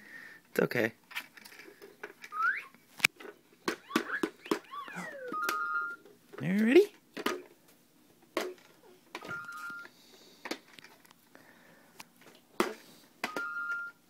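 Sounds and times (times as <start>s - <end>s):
electronic toy two-tone beep: 3.9s - 6.0s, 9.2s - 9.9s, 13.2s - 14.0s.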